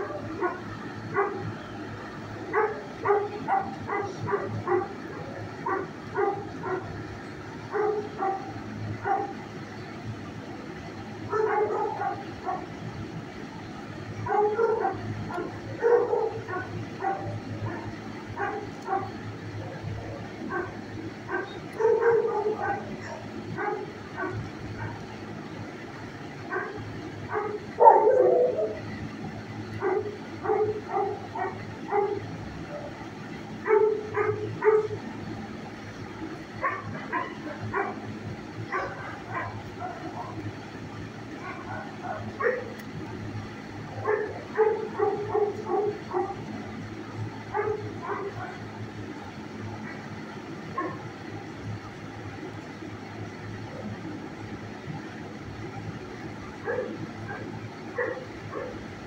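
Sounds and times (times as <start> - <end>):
dogs barking: 0.0 - 9.6, 11.0 - 13.1, 14.0 - 51.8, 56.2 - 59.0.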